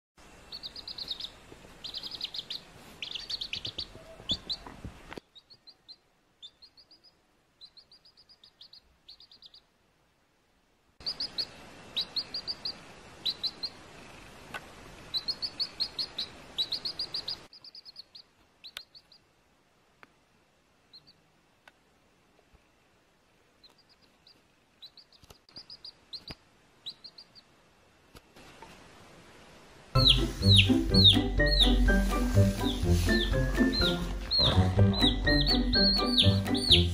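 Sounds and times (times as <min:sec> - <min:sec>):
baby chick peeping: 0:00.4 - 0:09.8, 0:11.0 - 0:14.3, 0:15.0 - 0:19.3, 0:20.9 - 0:21.3, 0:23.6 - 0:27.6, 0:30.0 - 0:36.9.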